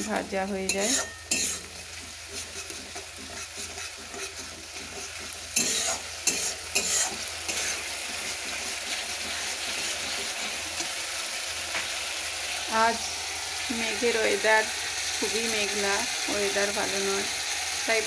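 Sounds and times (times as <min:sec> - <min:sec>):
steel spatula scraping a pan: 0:00.0 - 0:11.0
masala sizzling in a metal pan: 0:00.0 - 0:18.0.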